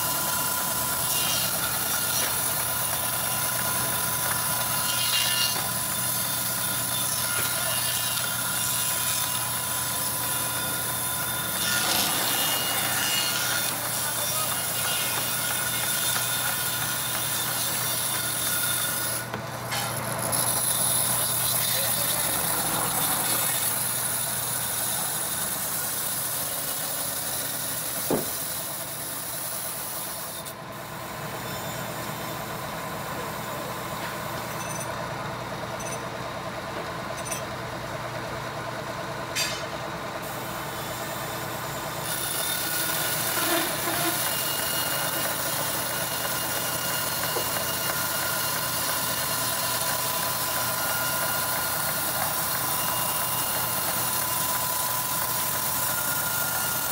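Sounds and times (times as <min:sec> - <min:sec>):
sawmill mechanical hum: 0:00.0 - 0:56.9
saw blade hissing: 0:04.8 - 0:30.4.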